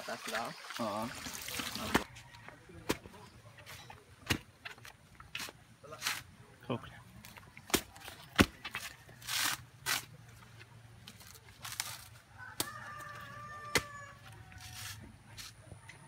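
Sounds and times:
rooster crowing: 0:12.4 - 0:14.8.

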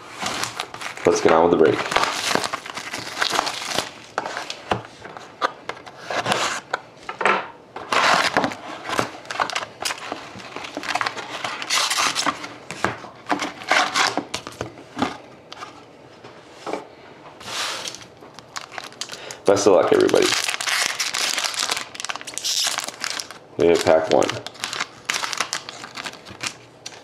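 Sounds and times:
plastic shrink-wrap being stripped: 0:00.2 - 0:04.0, 0:17.8 - 0:27.0.

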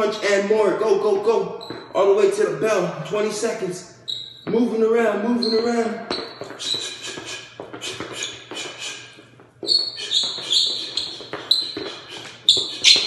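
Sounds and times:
shoe squeaks on floor: 0:01.5 - 0:02.0, 0:04.0 - 0:04.6, 0:05.3 - 0:13.0
footsteps tapping on hardwood floor: 0:01.6 - 0:02.0, 0:06.1 - 0:13.0.

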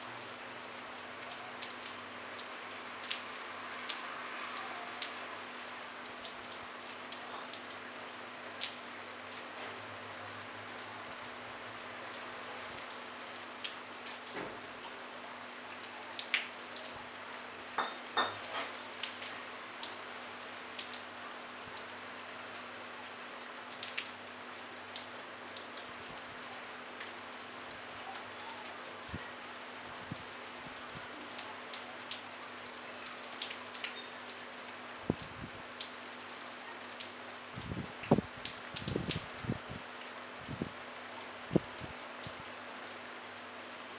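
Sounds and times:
light rain hissing: 0:00.0 - 0:43.9
raindrops ticking: 0:10.1 - 0:17.0, 0:18.9 - 0:29.8, 0:30.4 - 0:43.9.

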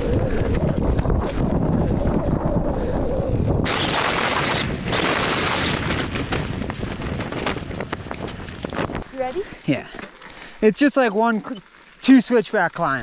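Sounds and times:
wind buffeting microphone: 0:00.0 - 0:09.2
bike tyres rolling on dirt: 0:03.7 - 0:13.0
gravel crackling under tyres: 0:03.7 - 0:13.0.

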